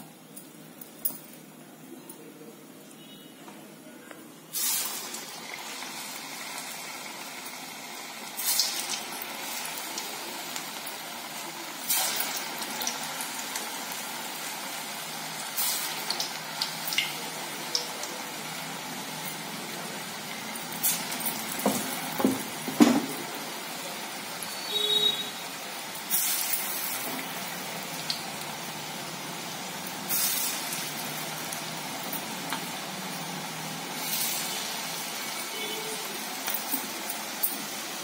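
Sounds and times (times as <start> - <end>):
food sizzling in hot oil: 4.5 - 38.0.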